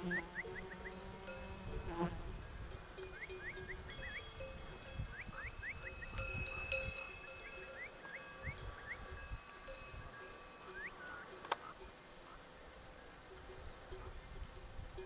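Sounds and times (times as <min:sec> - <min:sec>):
sheep bells ringing: 0:00.9 - 0:01.8, 0:02.6 - 0:12.1.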